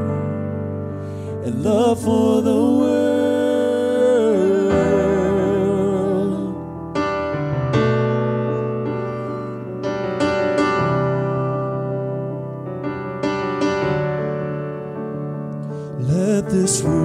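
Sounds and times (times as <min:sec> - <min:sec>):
piano chords: 0:00.0 - 0:17.0
person singing with vibrato: 0:01.3 - 0:06.8, 0:16.0 - 0:17.0.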